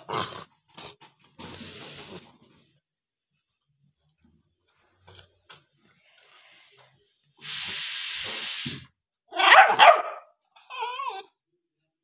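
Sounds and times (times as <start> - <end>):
steady hissing: 5.6 - 9.0
puppy barking: 9.3 - 10.4.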